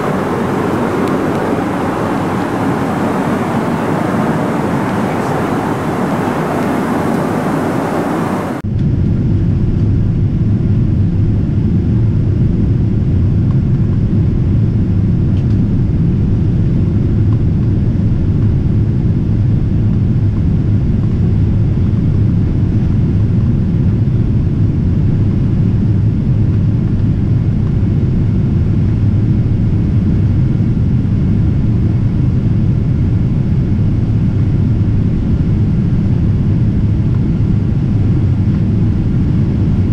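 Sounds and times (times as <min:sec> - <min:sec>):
airliner cabin noise: 0:00.0 - 0:09.3, 0:11.5 - 0:39.9.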